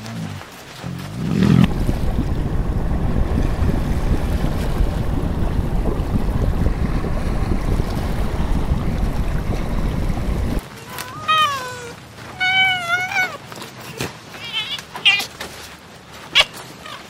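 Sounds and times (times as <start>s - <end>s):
underwater rushing water: 0.0s - 10.6s
heavy low rumble: 1.6s - 10.6s.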